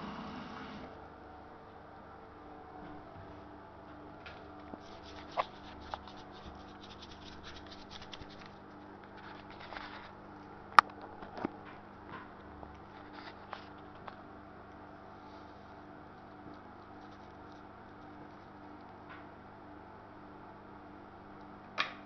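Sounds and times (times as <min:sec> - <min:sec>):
faint steady hum: 0:00.0 - 0:22.0
rustling and scratching: 0:04.7 - 0:10.2, 0:12.8 - 0:14.1, 0:16.8 - 0:18.8.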